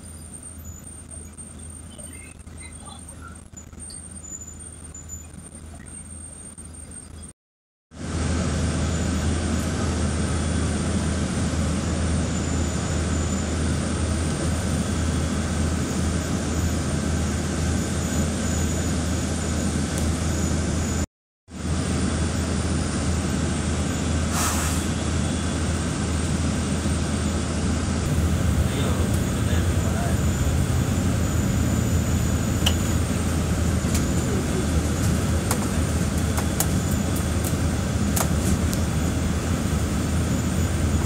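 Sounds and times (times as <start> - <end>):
bus engine drone: 0.0 - 41.0
short hiss: 24.3 - 24.9.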